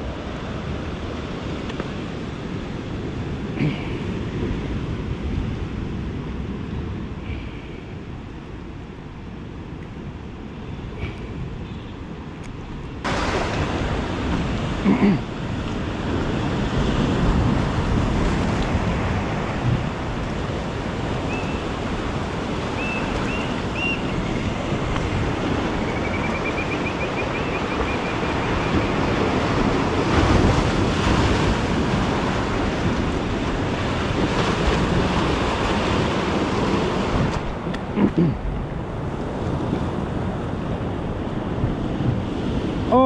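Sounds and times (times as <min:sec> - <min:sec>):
wind buffeting microphone: 0:08.1 - 0:43.0
surf breaking against rocks: 0:13.1 - 0:38.6.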